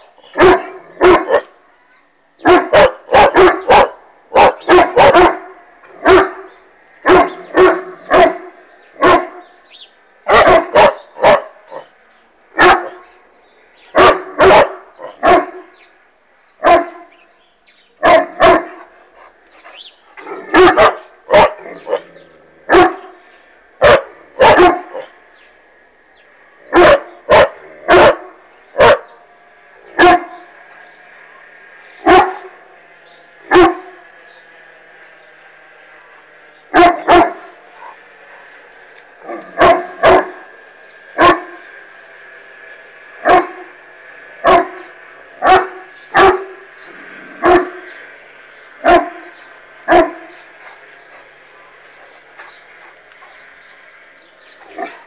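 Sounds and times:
dog barking: 0:00.4 - 0:01.5, 0:02.4 - 0:06.5, 0:07.1 - 0:09.4, 0:10.3 - 0:11.8, 0:12.6 - 0:13.0, 0:14.0 - 0:15.6, 0:16.6 - 0:17.1, 0:18.0 - 0:18.9, 0:20.3 - 0:22.1, 0:22.7 - 0:23.2, 0:23.8 - 0:25.1, 0:26.7 - 0:29.2, 0:30.0 - 0:30.4, 0:32.0 - 0:32.5, 0:33.5 - 0:33.9, 0:36.7 - 0:38.0, 0:39.3 - 0:40.4, 0:41.2 - 0:41.6, 0:43.2 - 0:43.6, 0:44.4 - 0:44.8, 0:45.4 - 0:46.6, 0:47.4 - 0:47.8, 0:48.8 - 0:49.2, 0:49.9 - 0:50.3.

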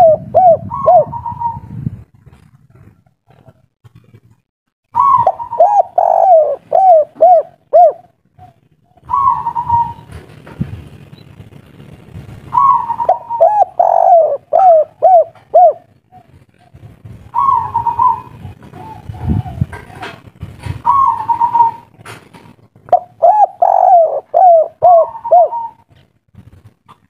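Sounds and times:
dove cooing: 0:00.0 - 0:01.8, 0:05.0 - 0:10.3, 0:12.5 - 0:22.1, 0:22.8 - 0:26.0.

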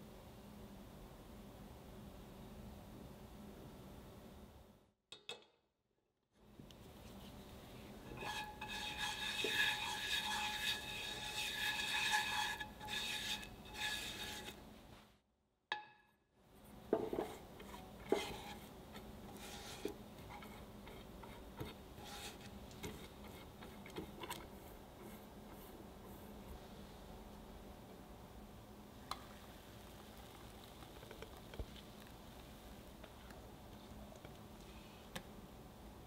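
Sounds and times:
butter sizzling in frying pan: 0:29.2 - 0:32.6.

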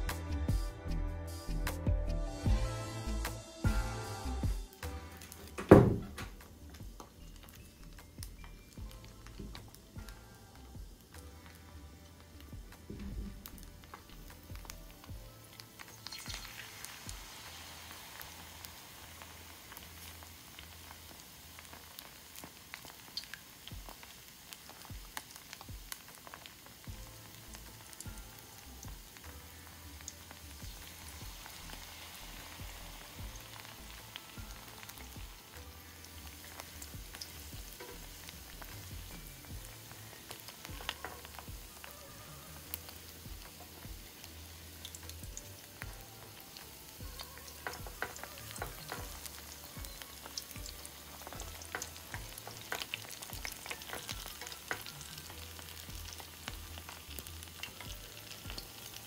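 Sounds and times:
food sizzling in hot oil: 0:00.0 - 0:59.0
oil crackles and pops: 0:04.8 - 0:59.0.

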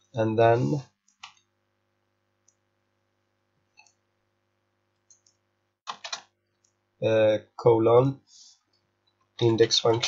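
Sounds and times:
computer keyboard keystrokes: 0:01.1 - 0:01.5, 0:05.1 - 0:06.3, 0:09.4 - 0:10.0.

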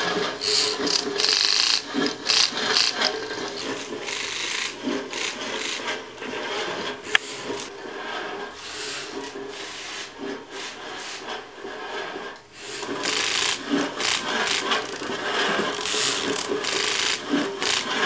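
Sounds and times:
mechanism scraping crumpled paper: 0:12.6 - 0:18.0.

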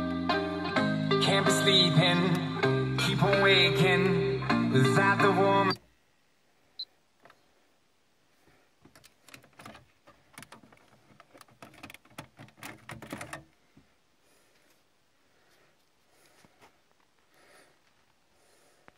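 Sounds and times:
plastic clicks and knocks: 0:08.8 - 0:13.5.

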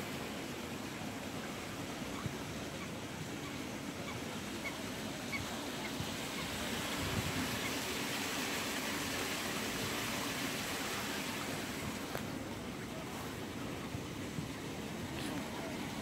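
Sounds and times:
waterbirds calling faintly: 0:00.3 - 0:16.0
rushing hiss of outdoor air: 0:04.3 - 0:16.0.

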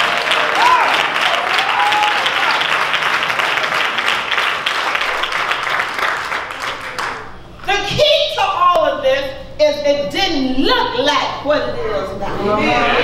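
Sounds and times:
congregation applauding: 0:00.0 - 0:07.5.

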